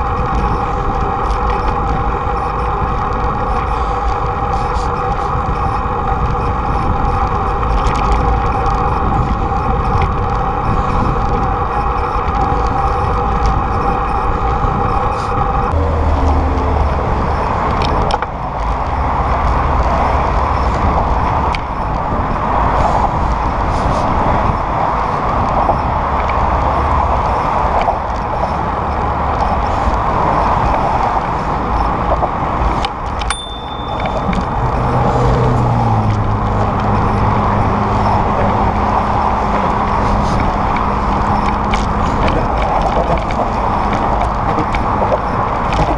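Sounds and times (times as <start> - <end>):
bicycle road noise: 0.0 - 45.9
motor traffic passing: 8.7 - 45.9
low steady hum: 33.2 - 45.9.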